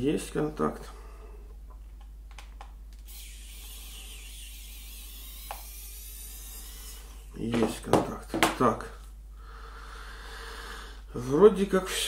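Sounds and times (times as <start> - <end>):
steady high hiss: 2.9 - 7.9.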